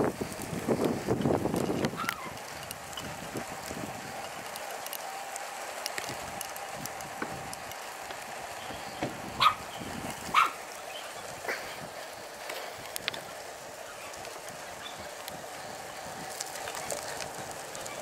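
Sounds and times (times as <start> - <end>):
steady background noise: 0.0 - 18.0
dog barking: 9.4 - 9.7, 10.3 - 10.6.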